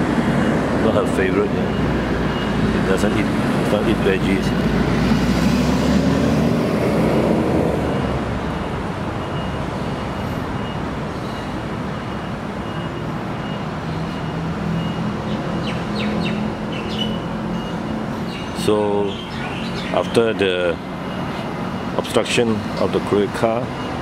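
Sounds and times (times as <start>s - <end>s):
vehicle passing by: 0.0s - 10.0s
road traffic rumble: 0.0s - 24.0s.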